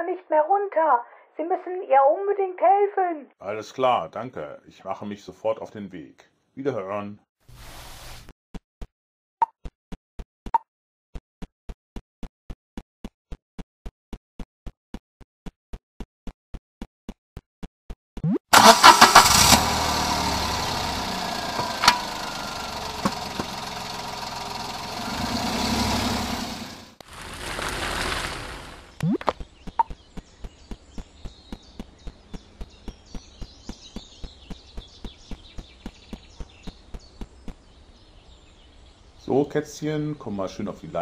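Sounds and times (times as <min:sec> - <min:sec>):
car engine starting and running: 0:18.5 - 0:29.0.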